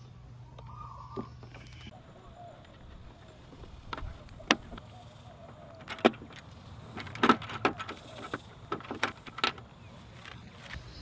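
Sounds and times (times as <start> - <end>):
plastic parts clicking and knocking: 5.7 - 10.4.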